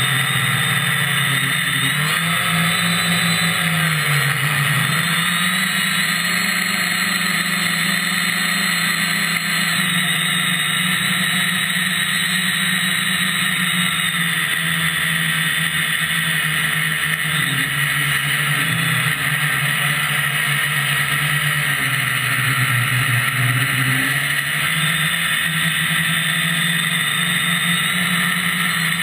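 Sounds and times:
quadcopter motors droning: 0.0 - 29.0.

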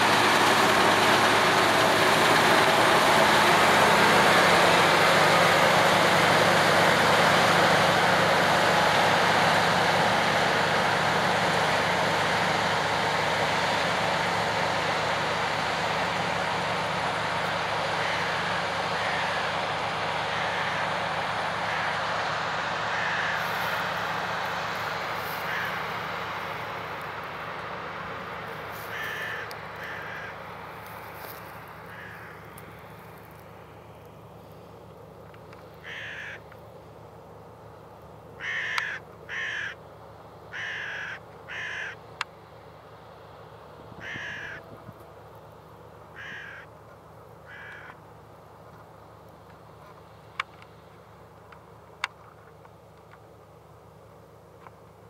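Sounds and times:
combine harvester engine and threshing: 0.0 - 55.0
crows cawing: 17.8 - 19.6, 20.2 - 22.0, 22.8 - 24.0, 25.2 - 26.0, 28.7 - 32.7, 35.8 - 36.5, 38.4 - 39.8, 40.5 - 42.0, 44.0 - 44.7, 46.1 - 46.8, 47.4 - 48.0.

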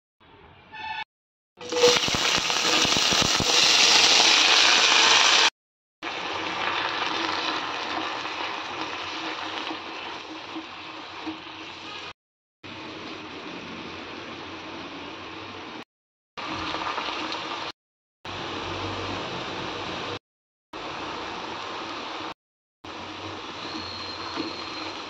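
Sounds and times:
leaves sizzling in hot oil: 1.6 - 15.8, 16.4 - 17.7, 20.8 - 25.0.

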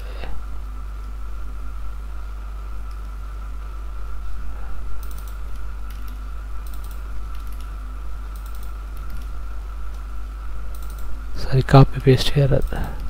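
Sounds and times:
low electrical hum: 0.0 - 13.0
computer keyboard keystrokes: 5.0 - 10.0, 10.7 - 11.1.

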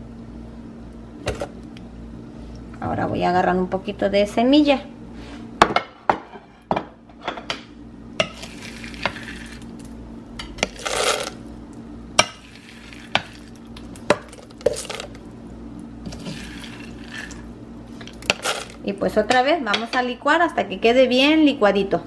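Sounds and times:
spoon scraping seeds on plate: 8.2 - 9.7, 10.6 - 11.4, 16.1 - 17.4, 18.0 - 18.8.

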